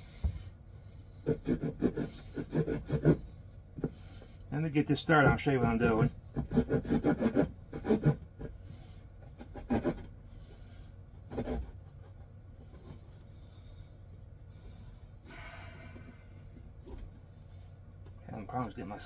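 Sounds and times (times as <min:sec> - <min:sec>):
saw rasping into wood: 0:01.2 - 0:03.3, 0:05.2 - 0:10.1, 0:11.3 - 0:11.8.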